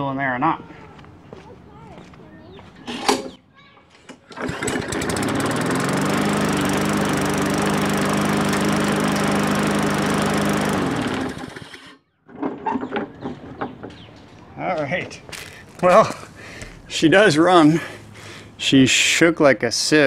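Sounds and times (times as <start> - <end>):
lawn mower engine running: 2.5 - 3.4, 4.1 - 12.5
mower shaking: 4.0 - 13.8.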